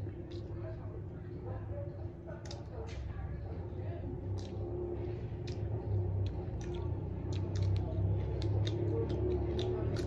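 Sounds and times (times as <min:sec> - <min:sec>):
chewing and lip smacks: 0:00.0 - 0:10.0
steady low hum: 0:00.0 - 0:10.0
fingers squishing rice: 0:04.1 - 0:10.0.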